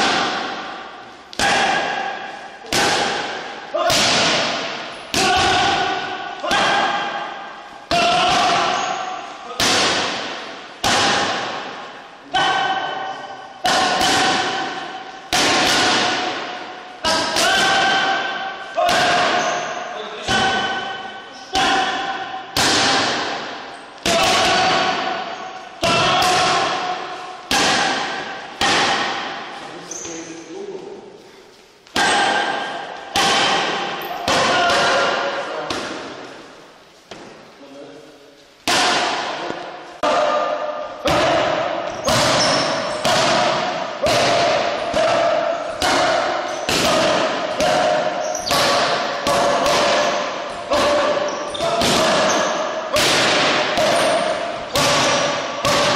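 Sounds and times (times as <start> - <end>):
boxing gloves hitting focus mitts: 9.6 - 13.0, 13.6 - 19.6, 41.1 - 55.9.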